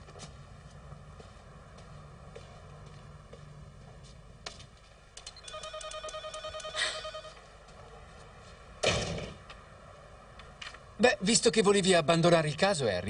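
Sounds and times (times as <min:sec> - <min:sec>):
electronic telephone ringer trill: 0:05.4 - 0:07.3.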